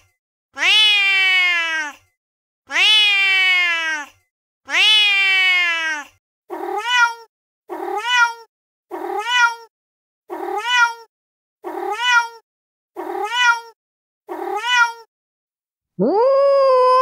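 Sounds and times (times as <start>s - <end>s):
cat meowing: 0.6s - 2.0s, 2.7s - 4.1s, 4.7s - 9.7s, 10.4s - 11.1s, 11.7s - 12.4s, 13.0s - 15.1s, 16.0s - 17.0s.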